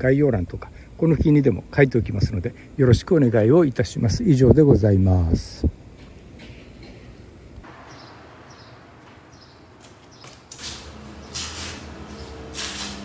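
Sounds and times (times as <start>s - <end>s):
vehicle engine humming: 7.6s - 13.0s
high bird chirps: 7.7s - 12.4s
loud bursts of hiss: 10.6s - 13.0s.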